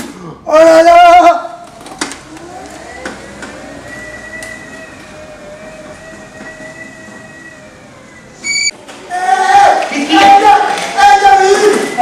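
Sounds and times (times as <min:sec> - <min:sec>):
wheelchair motors whining: 0:01.6 - 0:09.4.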